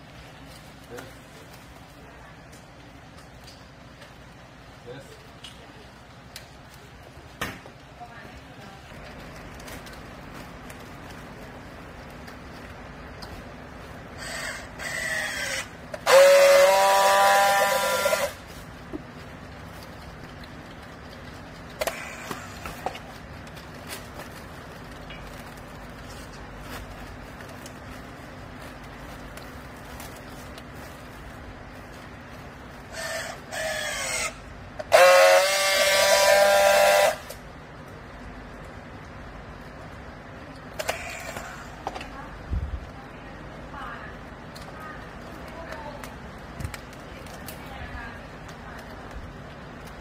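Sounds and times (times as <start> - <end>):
loud steady welding buzz: 0.0 - 50.0
strapping tool motor tensioning: 14.2 - 18.4, 32.9 - 37.3, 40.8 - 41.9
strapping tool welding buzz: 14.2 - 18.5, 32.9 - 37.4.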